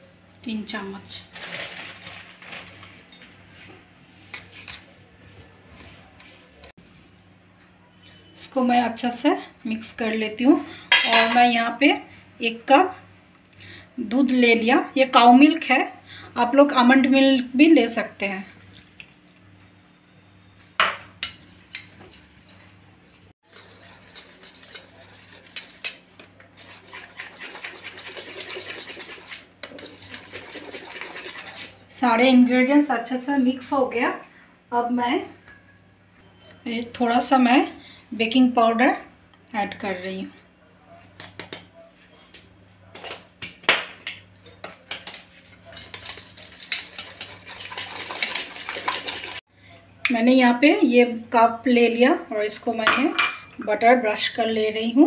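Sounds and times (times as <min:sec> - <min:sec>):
whisk scraping metal bowl: 0:23.4 - 0:32.0, 0:45.0 - 0:49.5.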